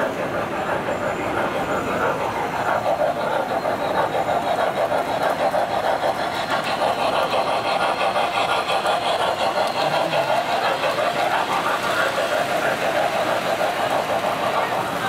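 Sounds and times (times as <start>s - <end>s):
toy train motor whirring: 0.0s - 15.0s
wheels rattling on tin rails: 0.0s - 15.0s.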